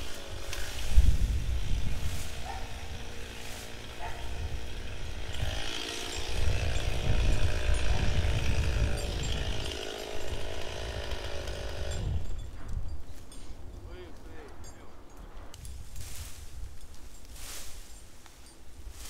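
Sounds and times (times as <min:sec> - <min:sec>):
chainsaw running: 0:00.0 - 0:12.5.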